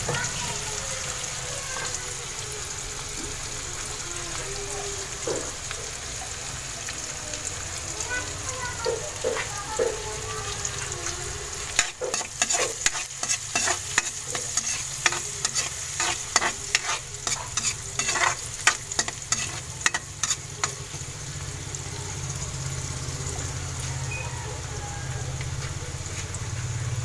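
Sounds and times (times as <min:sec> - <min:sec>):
oil sizzling: 0:00.0 - 0:27.0
metal spatula scraping a wok: 0:11.5 - 0:21.2.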